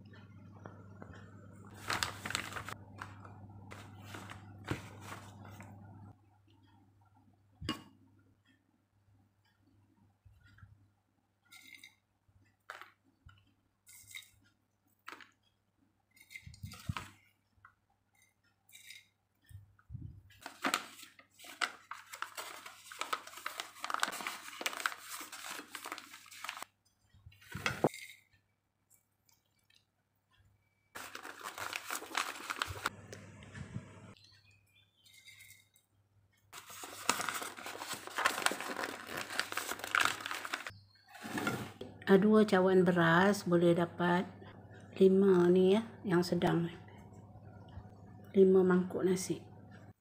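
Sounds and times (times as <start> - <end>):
paper and leaf rustling: 1.7 - 5.8, 20.4 - 26.7, 27.4 - 28.1, 31.0 - 33.0, 36.6 - 41.8.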